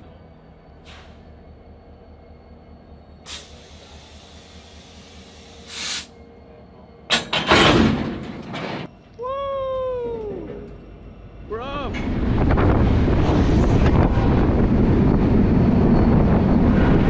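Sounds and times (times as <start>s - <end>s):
locomotive engine hum: 0.0s - 17.0s
air hissing: 0.8s - 1.3s, 3.2s - 6.2s.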